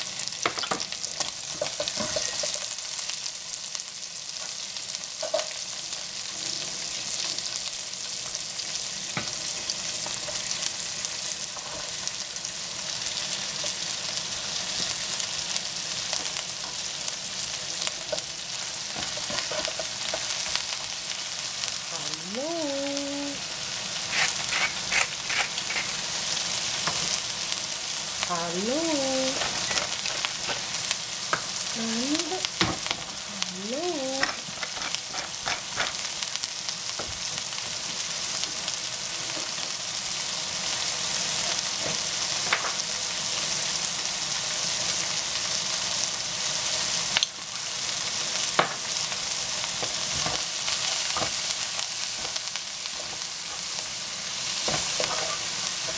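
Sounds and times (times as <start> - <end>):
food sizzling in a frying pan: 0.0 - 55.9
wooden spatula scraping a pan: 24.0 - 26.0, 34.2 - 36.0.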